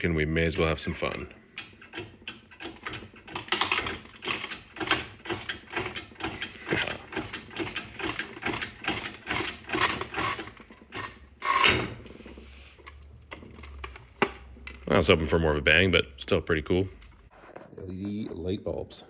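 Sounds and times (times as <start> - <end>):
hydraulic press clicks and creaks: 0.5 - 14.9.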